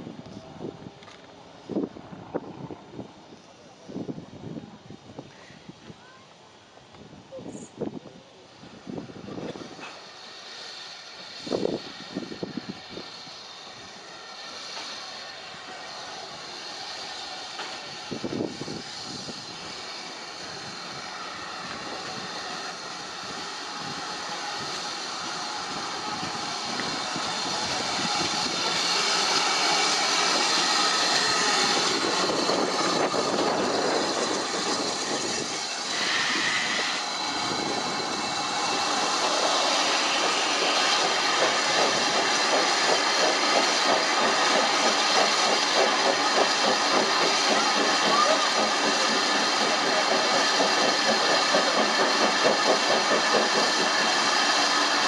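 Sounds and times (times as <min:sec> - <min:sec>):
steam locomotive hissing: 0:06.5 - 0:55.0
high squeal: 0:10.6 - 0:42.4.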